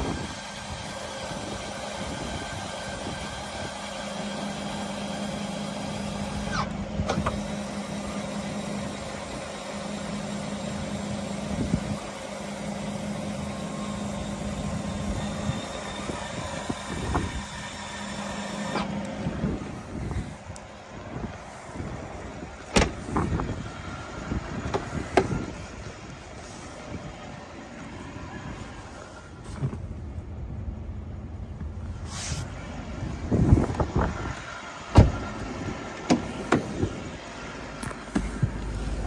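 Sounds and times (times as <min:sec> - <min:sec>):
diesel engine idling: 0:00.0 - 0:39.0.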